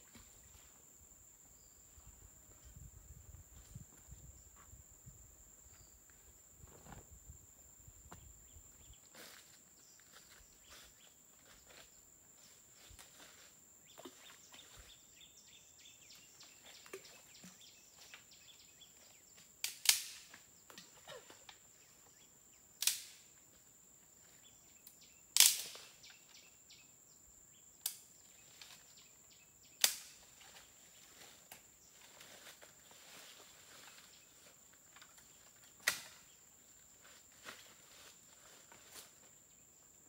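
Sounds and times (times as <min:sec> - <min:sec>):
loud sharp clicks: 0:19.6 - 0:20.3, 0:22.8 - 0:23.2, 0:25.4 - 0:25.8, 0:29.8 - 0:30.1.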